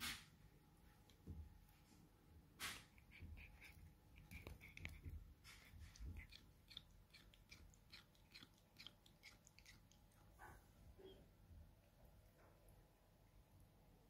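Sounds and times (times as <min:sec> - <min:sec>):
cat gnawing wooden stick: 0:02.6 - 0:10.9.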